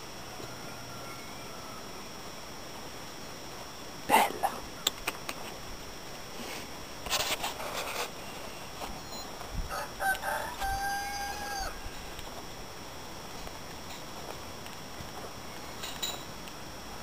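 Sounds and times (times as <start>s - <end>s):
rooster crowing: 0.1s - 2.2s, 9.7s - 12.2s
brief breathy rustle: 6.3s - 9.0s.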